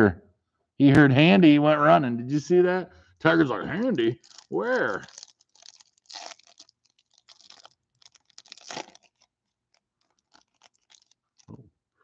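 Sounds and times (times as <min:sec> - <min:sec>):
foil wrapper crinkling: 0:04.2 - 0:11.6.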